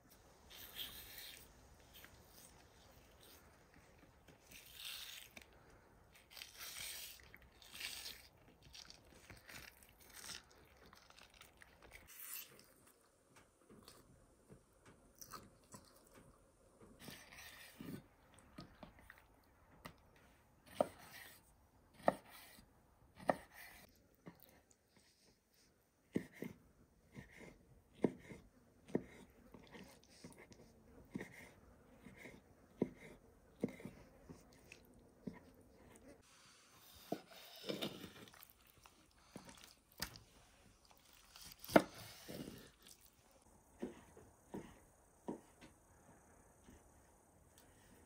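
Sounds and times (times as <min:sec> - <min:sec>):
knife slicing on wooden board: 0:41.4 - 0:42.7.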